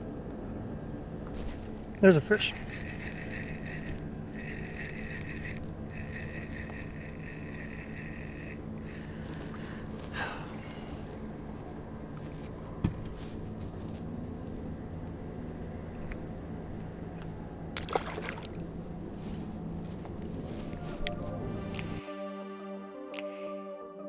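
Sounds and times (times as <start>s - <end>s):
steady low hum: 0.0s - 22.0s
fishing reel whirring: 1.4s - 10.2s
water splash: 17.8s - 18.6s.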